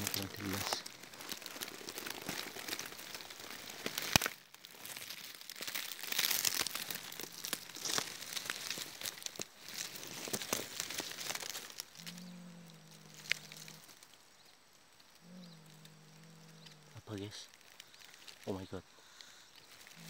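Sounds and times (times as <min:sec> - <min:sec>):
dry leaves crackling and rustling: 0:00.0 - 0:20.0.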